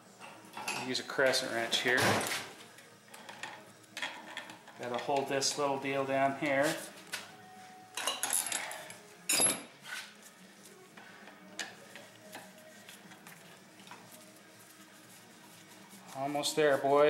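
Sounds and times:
metal tools clinking: 0:08.0 - 0:09.7.

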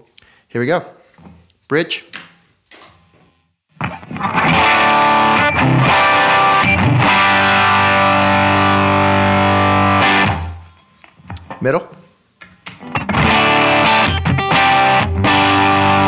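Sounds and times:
overdriven electric guitar chords: 0:03.8 - 0:11.5, 0:12.8 - 0:16.0.

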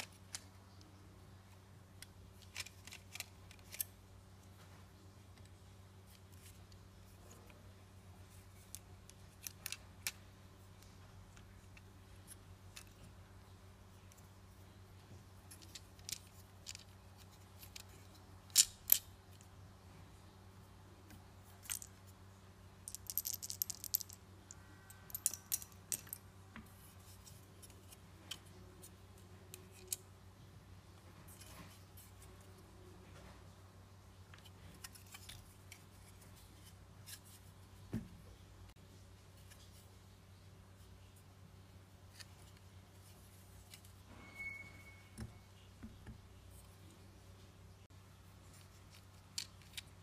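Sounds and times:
small plastic parts clicking: 0:02.0 - 0:04.0, 0:08.3 - 0:13.1, 0:15.4 - 0:19.5, 0:22.9 - 0:26.2, 0:48.5 - 0:50.0
brief high tone: 0:44.1 - 0:45.4.

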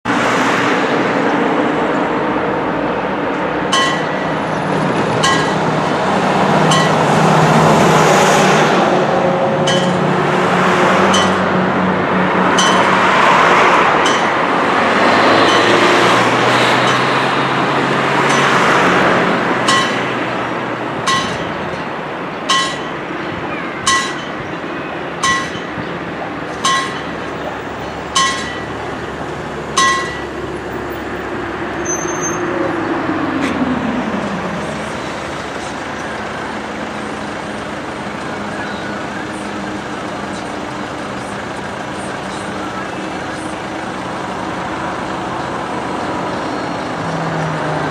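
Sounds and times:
cars driving past: 0:00.0 - 0:47.9
level crossing warning bell: 0:03.6 - 0:07.8, 0:09.1 - 0:11.7, 0:12.5 - 0:32.5.

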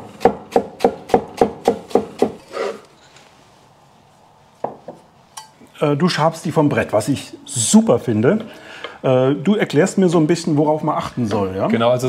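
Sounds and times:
cleaver chopping on wooden board: 0:00.2 - 0:02.4.

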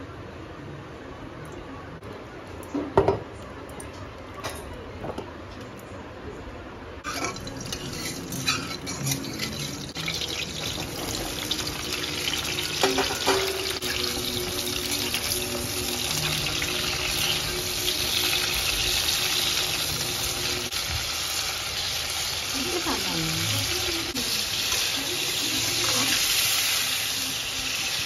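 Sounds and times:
vegetables sizzling in hot oil: 0:07.1 - 0:28.0.

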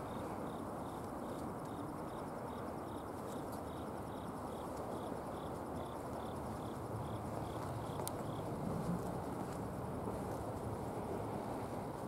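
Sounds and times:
train rumbling on track: 0:06.8 - 0:12.0.

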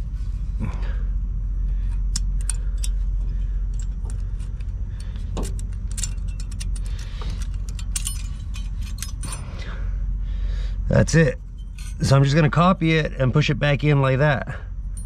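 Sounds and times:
steady low rumble: 0:00.0 - 0:15.0
metal clips clicking: 0:02.1 - 0:03.0, 0:03.8 - 0:09.4.

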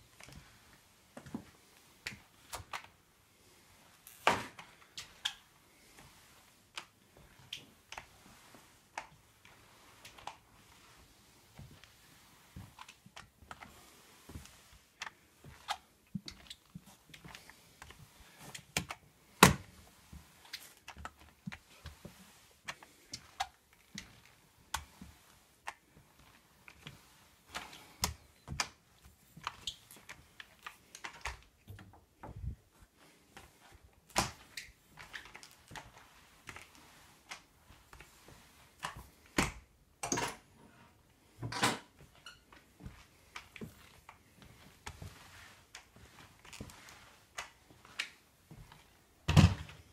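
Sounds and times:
mop clicking and knocking on floor: 0:03.9 - 0:32.6, 0:33.3 - 0:40.5, 0:41.4 - 0:49.9.

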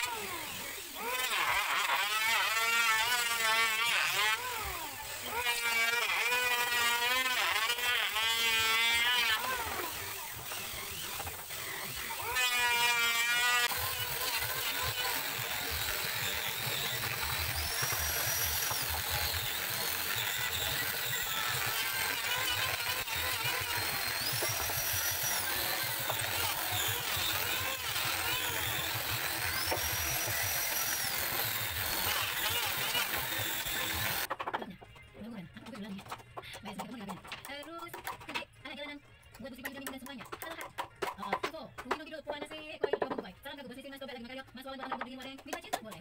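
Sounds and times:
angle grinder sanding wood: 0:00.0 - 0:34.3
small electric drill: 0:00.0 - 0:34.3.

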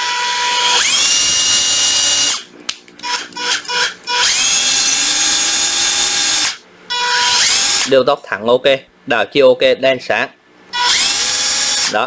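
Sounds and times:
impact driver motor whine: 0:00.0 - 0:07.9, 0:10.7 - 0:12.0.

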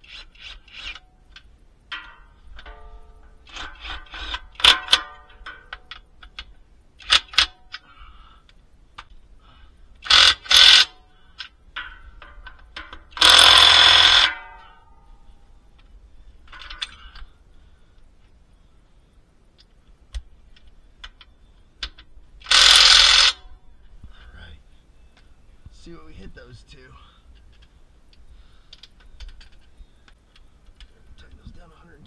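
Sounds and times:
impact wrench bursts: 0:03.4 - 0:05.8, 0:10.0 - 0:11.5, 0:12.8 - 0:14.8, 0:22.4 - 0:23.4.

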